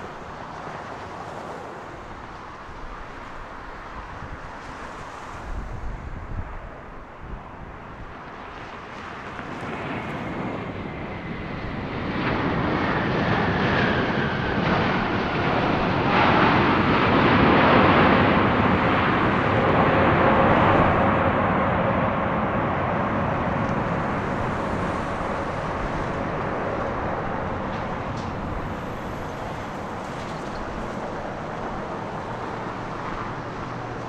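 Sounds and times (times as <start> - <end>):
jet engine rushing: 7.8 - 34.0.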